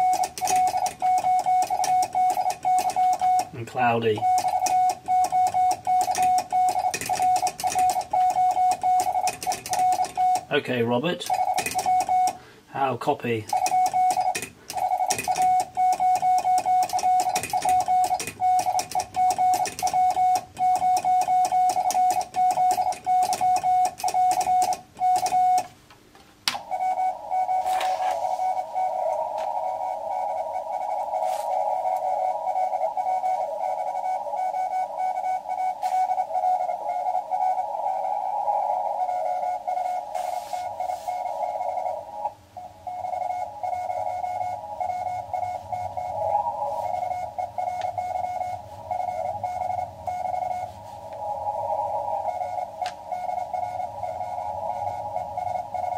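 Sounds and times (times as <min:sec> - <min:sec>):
morse code tone: 0:00.0 - 0:25.7, 0:26.6 - 0:55.9
radio receiver hiss: 0:26.5 - 0:55.9.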